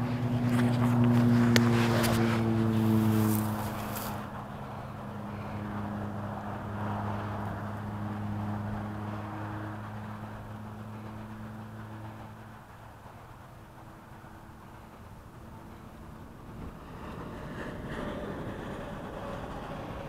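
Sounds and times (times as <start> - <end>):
motor droning: 0.0 - 20.0.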